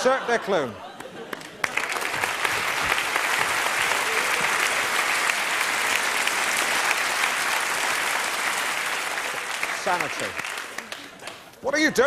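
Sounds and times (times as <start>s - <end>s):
audience applauding: 0.9s - 11.5s.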